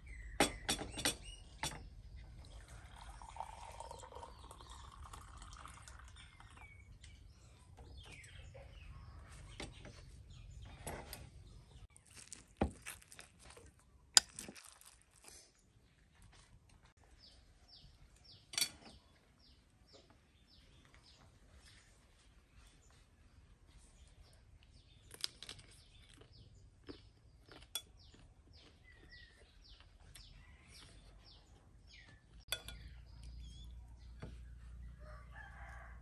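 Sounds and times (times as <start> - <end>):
birds chirping: 0.0 - 12.4, 17.0 - 35.9
tea pouring into a glass: 2.4 - 6.6
teapot and glass clinking: 2.8 - 6.6, 32.5 - 33.0
spoon clinking on dishes: 32.5 - 33.0.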